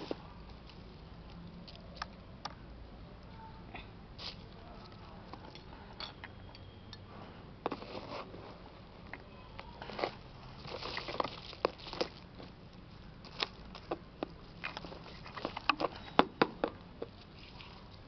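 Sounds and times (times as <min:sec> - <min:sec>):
rustling scrape in soil: 0:07.1 - 0:08.8, 0:09.7 - 0:12.2, 0:17.2 - 0:18.0
soil crackling and rustling: 0:07.6 - 0:16.2, 0:16.8 - 0:18.0.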